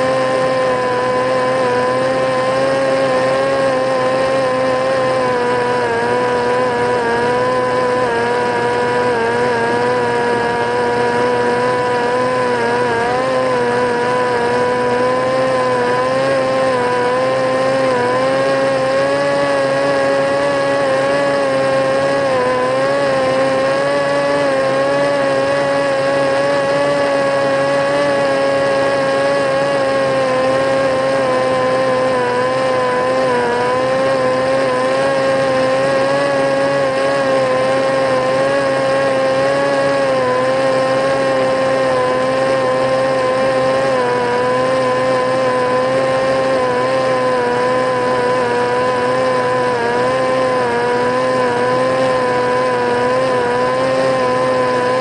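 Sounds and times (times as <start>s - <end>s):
drone motor whine: 0.0s - 55.0s.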